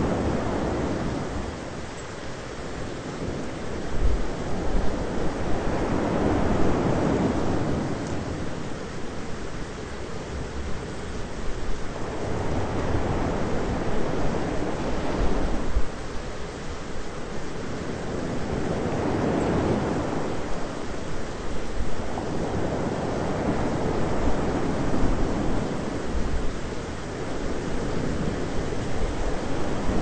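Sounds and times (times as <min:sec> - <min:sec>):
steady rushing rain: 0:00.0 - 0:30.0.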